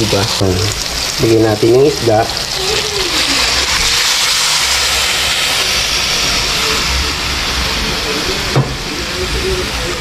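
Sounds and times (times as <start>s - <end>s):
fish sizzling in a wok: 0.0s - 10.0s.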